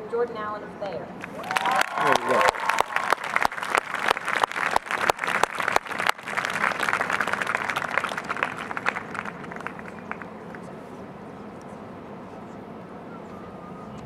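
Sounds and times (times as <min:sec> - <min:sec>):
crowd applauding: 0:01.2 - 0:10.7.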